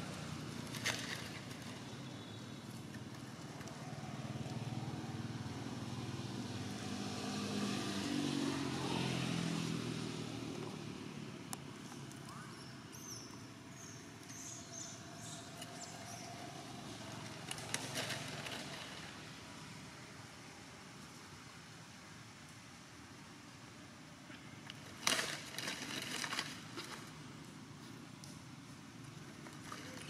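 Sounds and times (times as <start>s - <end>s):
vehicle engine passing by: 3.1s - 12.2s, 14.3s - 19.8s
faint high chirps: 12.2s - 16.3s.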